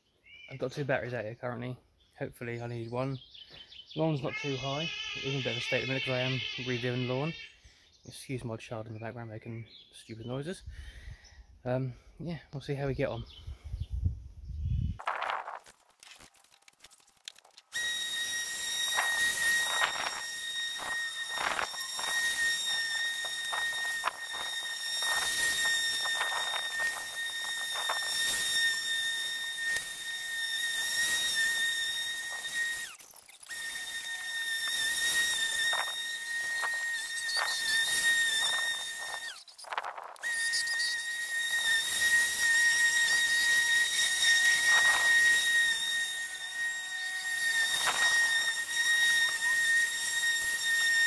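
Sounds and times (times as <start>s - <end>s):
lawnmower motor whine: 15.4s - 51.0s
blade cutting grass hiss: 17.8s - 51.0s.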